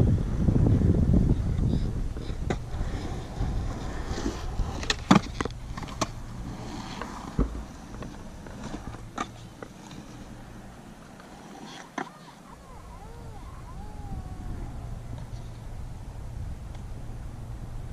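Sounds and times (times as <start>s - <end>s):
wind rumble on microphone: 0.0s - 8.2s, 12.6s - 17.9s
skateboard rolling on concrete: 0.0s - 17.9s.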